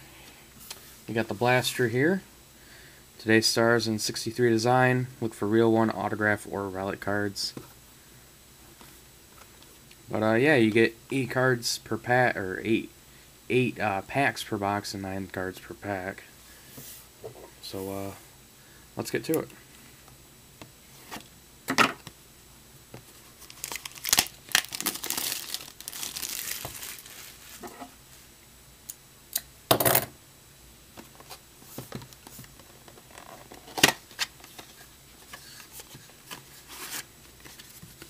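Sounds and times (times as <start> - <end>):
cardboard tearing: 23.4 - 27.5.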